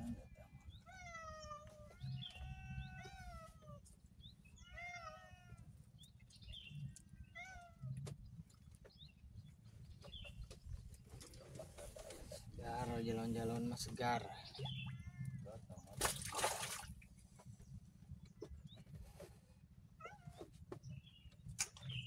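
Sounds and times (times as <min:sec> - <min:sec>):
cat meowing: 0:00.8 - 0:03.8, 0:04.6 - 0:05.7, 0:07.2 - 0:08.0, 0:14.8 - 0:15.4, 0:20.0 - 0:20.5.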